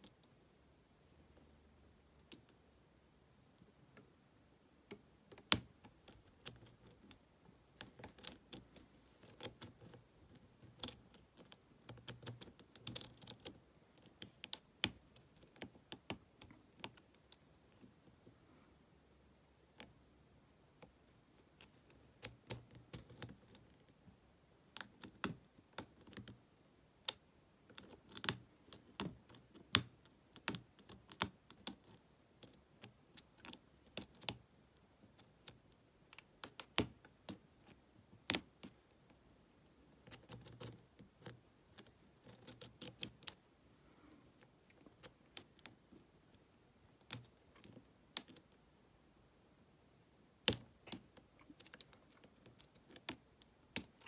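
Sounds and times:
lock pick clicking and scraping: 7.8 - 17.8, 40.0 - 43.4, 50.5 - 54.0.

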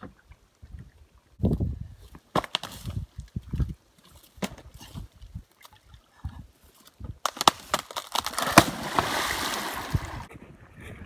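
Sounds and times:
wood knocks and cracks: 7.2 - 9.1
tree trunk splashing into pond: 7.3 - 10.3.

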